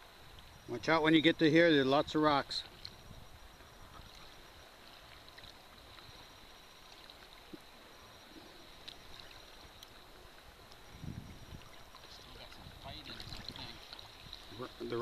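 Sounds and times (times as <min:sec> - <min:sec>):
faint lapping of sea water: 0:00.0 - 0:15.0
soft ticks: 0:08.8 - 0:10.9.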